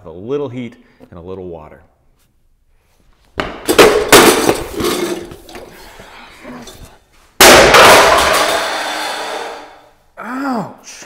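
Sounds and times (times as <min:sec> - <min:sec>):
knocks and clattering: 0:03.4 - 0:05.8, 0:07.4 - 0:09.8
stool crashing over: 0:03.4 - 0:05.8, 0:07.4 - 0:09.8.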